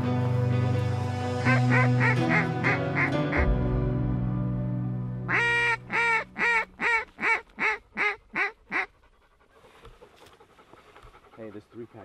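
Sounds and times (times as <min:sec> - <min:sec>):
goose honking: 0:05.3 - 0:08.9.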